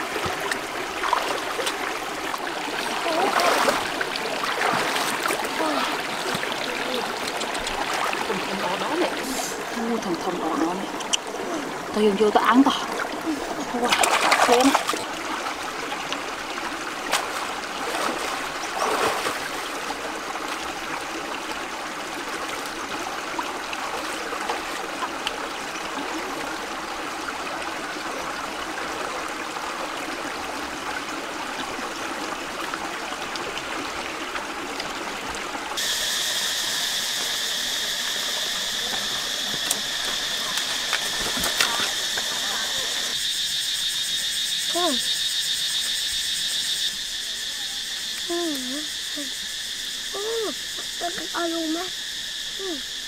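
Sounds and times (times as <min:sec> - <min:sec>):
water splashes: 0:00.0 - 0:43.4
stream trickling over rocks: 0:00.0 - 0:52.0
high insect drone: 0:00.0 - 0:53.0.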